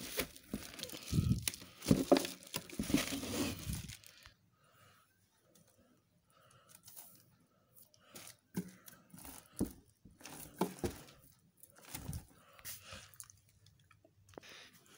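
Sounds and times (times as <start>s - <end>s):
plastic film crinkling: 0.0s - 4.3s.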